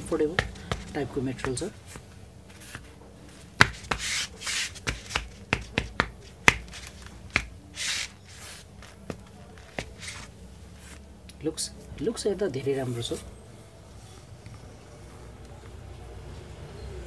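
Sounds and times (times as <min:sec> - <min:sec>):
short rubbing swishes: 0:00.4 - 0:09.0, 0:09.6 - 0:11.0
taps and clicks handling boot: 0:03.6 - 0:07.6.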